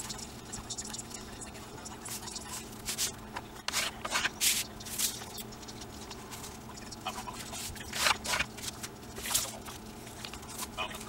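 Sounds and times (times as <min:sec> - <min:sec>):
paper rustling and creasing: 0:07.4 - 0:10.7.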